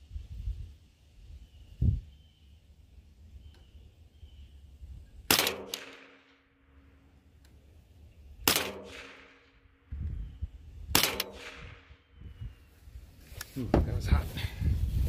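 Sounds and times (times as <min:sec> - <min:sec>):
rifle shots: 0:05.3 - 0:06.5, 0:08.4 - 0:09.6, 0:10.9 - 0:12.0.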